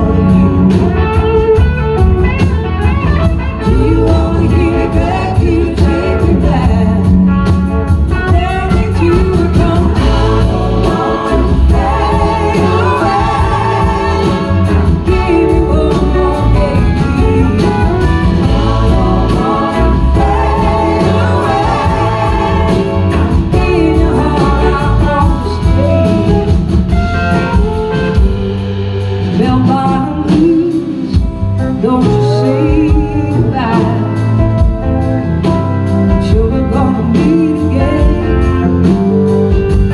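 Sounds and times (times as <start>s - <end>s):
live blues-rock band playing: 0.0s - 39.9s
woman singing: 3.6s - 7.4s, 8.1s - 26.7s, 29.2s - 34.6s, 36.1s - 39.2s.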